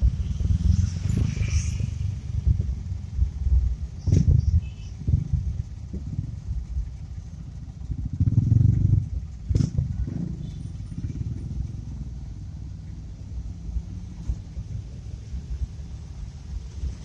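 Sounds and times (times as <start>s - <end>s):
motorcycle and scooter engines: 0.0s - 17.0s.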